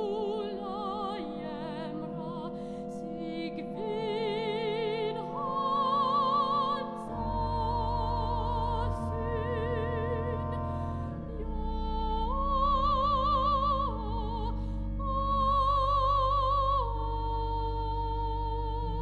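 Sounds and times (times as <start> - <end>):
organ chords: 0.0 - 19.0
soprano singing: 0.0 - 19.0
deep organ bass note: 7.5 - 15.4.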